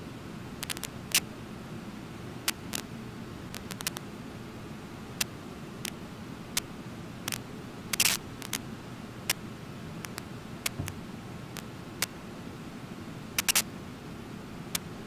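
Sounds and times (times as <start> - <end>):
brief crackle: 0.6 - 1.2, 3.5 - 4.0, 7.3 - 8.6, 13.4 - 13.7
sharp irregular clicks: 0.6 - 1.2, 3.5 - 4.0, 7.3 - 8.6, 13.4 - 13.7.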